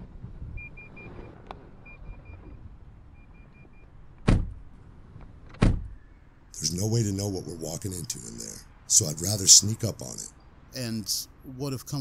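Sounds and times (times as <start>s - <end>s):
car doors slamming: 4.2s - 4.6s, 5.5s - 6.0s.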